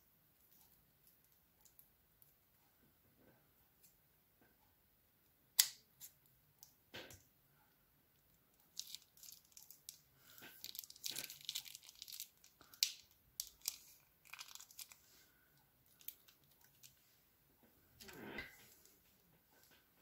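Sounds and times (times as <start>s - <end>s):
plastic bag crinkling and tearing: 8.7s - 15.1s, 15.9s - 17.0s.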